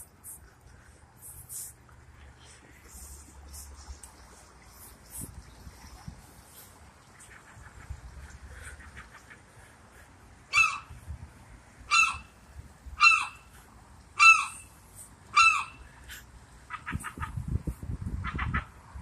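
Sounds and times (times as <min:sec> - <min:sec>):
gull calling: 0:11.9 - 0:12.3, 0:14.2 - 0:14.7, 0:15.4 - 0:15.9.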